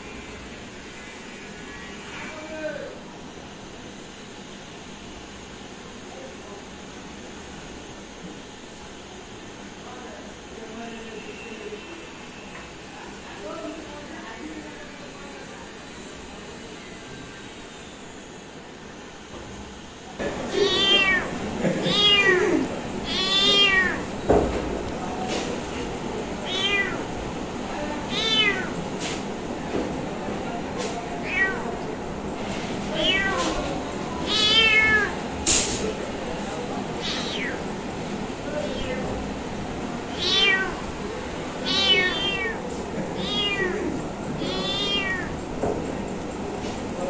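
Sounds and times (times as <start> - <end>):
kitten meowing: 20.5 - 21.3, 21.9 - 24.1, 26.4 - 27.1, 28.1 - 28.8, 31.2 - 31.7, 33.0 - 33.6, 34.2 - 35.2, 37.0 - 37.7, 38.6 - 39.1, 40.1 - 40.9, 41.6 - 42.6, 43.2 - 45.3.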